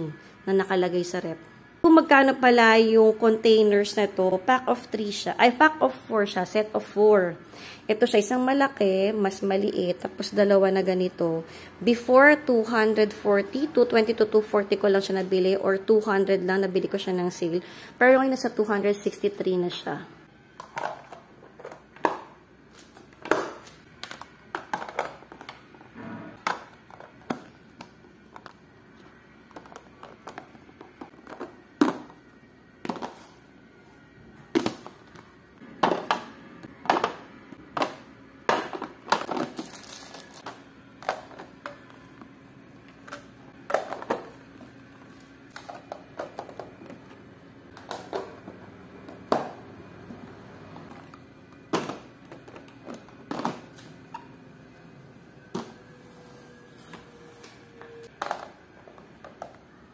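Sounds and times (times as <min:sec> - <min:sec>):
plastic boxes set on countertop: 0:20.5 - 0:33.4, 0:34.0 - 0:54.3.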